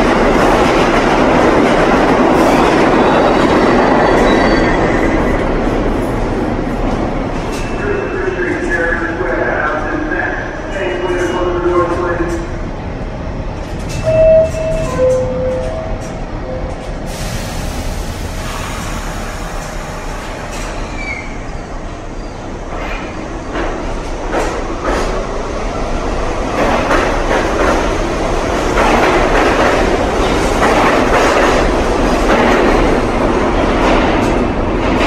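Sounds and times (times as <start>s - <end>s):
subway train rumble: 0.0s - 35.0s.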